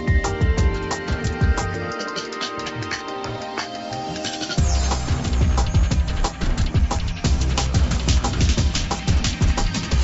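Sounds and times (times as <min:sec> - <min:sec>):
steady drum beat: 0:00.0 - 0:10.0
heavy bass line: 0:04.6 - 0:10.0.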